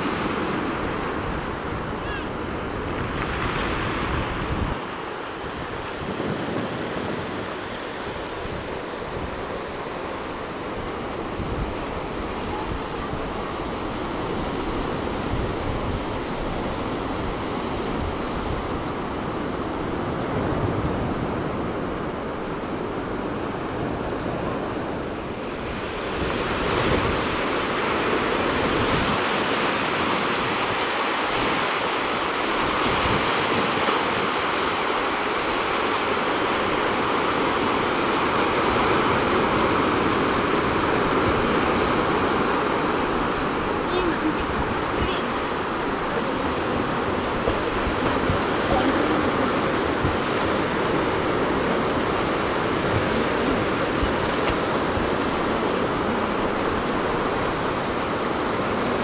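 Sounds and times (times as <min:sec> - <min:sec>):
wind rumbling on microphone: 0:00.0 - 0:59.0
surf breaking on rocks: 0:25.5 - 0:59.0.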